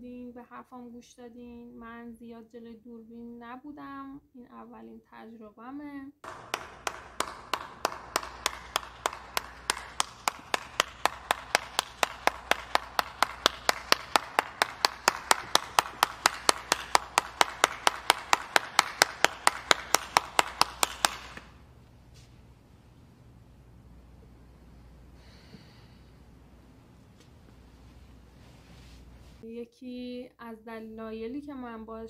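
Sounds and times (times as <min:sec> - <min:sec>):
person clapping: 0:06.2 - 0:21.6.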